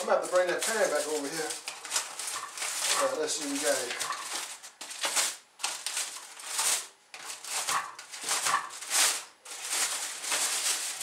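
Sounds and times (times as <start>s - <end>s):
aluminium foil crinkling: 0.0s - 11.0s.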